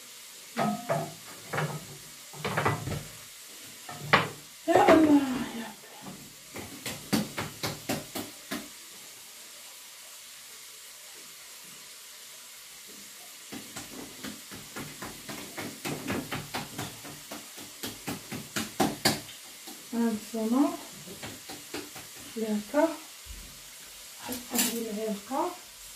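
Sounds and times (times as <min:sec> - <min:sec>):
faint steady hiss: 0:00.0 - 0:25.9
hands patting dough: 0:06.5 - 0:08.7, 0:13.5 - 0:19.9, 0:21.0 - 0:22.4.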